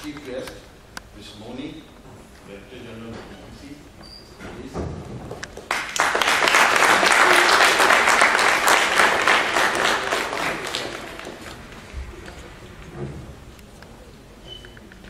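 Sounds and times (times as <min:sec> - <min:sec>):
audience applauding: 0:05.6 - 0:12.9.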